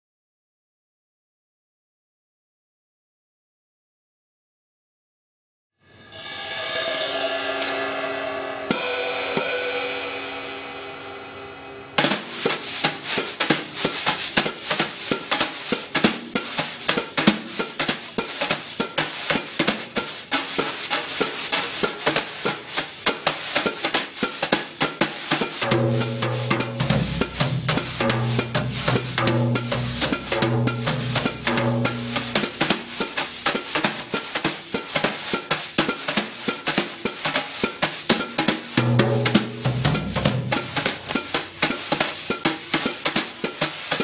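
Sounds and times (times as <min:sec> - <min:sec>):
ringing cymbal swell: 0:05.8 - 0:12.9
low sustained notes: 0:06.1 - 0:12.0
snare and hi-hat beat: 0:12.0 - 0:44.0.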